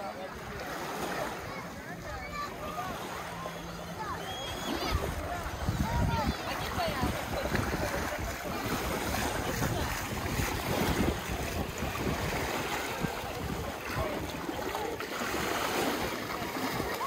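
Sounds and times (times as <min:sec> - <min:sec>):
sea water lapping at shore: 0:00.0 - 0:17.0
wind buffeting microphone: 0:04.0 - 0:17.0.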